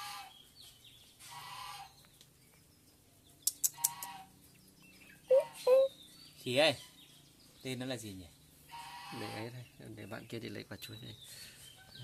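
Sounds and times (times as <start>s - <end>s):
animal calls: 5.3s - 6.0s.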